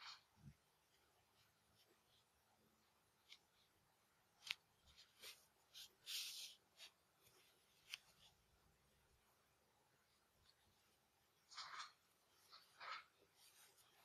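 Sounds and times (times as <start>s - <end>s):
wool hat rustling: 4.4s - 8.5s.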